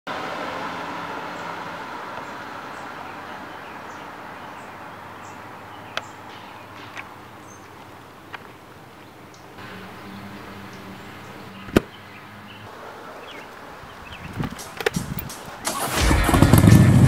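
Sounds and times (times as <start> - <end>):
small birds chirping: 1.2 - 15.7
sharp clicks: 14.3 - 16.8.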